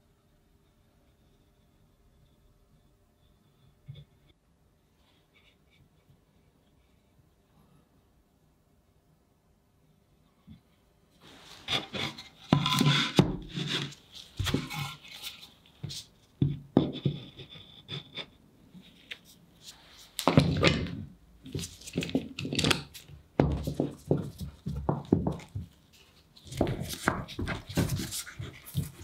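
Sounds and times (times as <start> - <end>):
hard parts knocking and scraping: 11.6 - 18.4.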